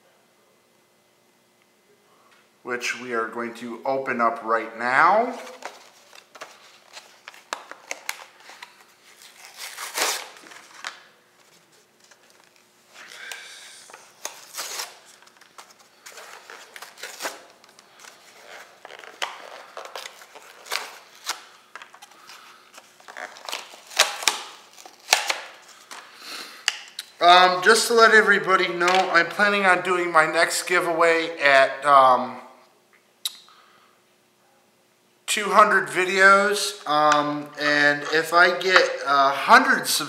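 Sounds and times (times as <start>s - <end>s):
plastic packaging crinkling and cracking: 5.3s - 26.1s.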